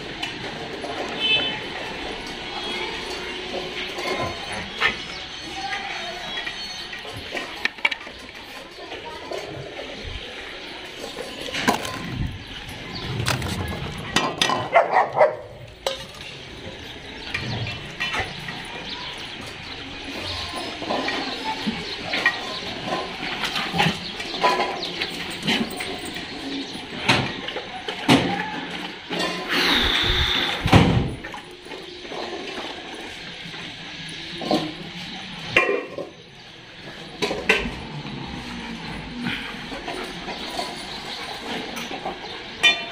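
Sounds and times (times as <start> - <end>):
metal dog bowls clinking on tiles: 0.0 - 9.6, 10.8 - 30.0, 31.1 - 42.9
dog barking: 14.6 - 15.6.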